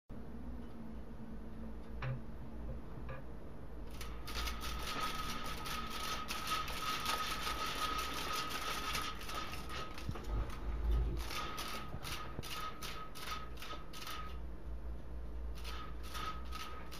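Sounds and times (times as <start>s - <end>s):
window blind slats rattling: 3.9s - 14.4s, 15.6s - 16.9s.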